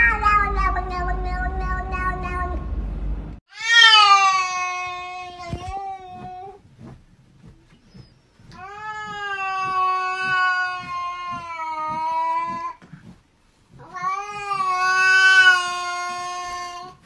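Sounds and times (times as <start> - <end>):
cat yowling: 0.0 - 2.6, 3.5 - 6.6, 8.6 - 12.8, 13.8 - 17.0.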